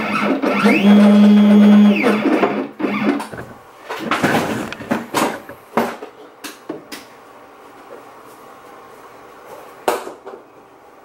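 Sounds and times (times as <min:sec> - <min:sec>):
router spindle steady tone: 0:00.0 - 0:03.0
stepper motors whining: 0:00.0 - 0:03.5.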